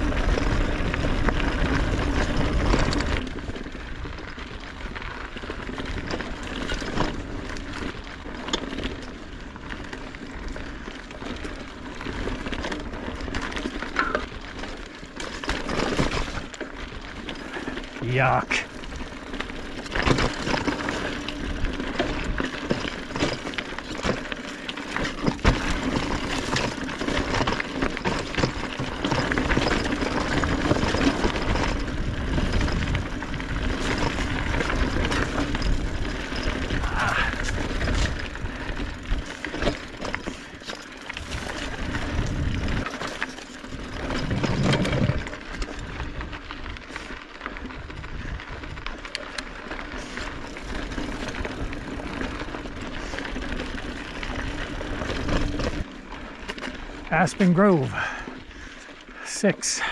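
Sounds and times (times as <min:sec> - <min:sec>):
bike clicks and rattles: 0:00.0 - 0:59.9
bike tyres on dirt trail: 0:00.0 - 0:59.9.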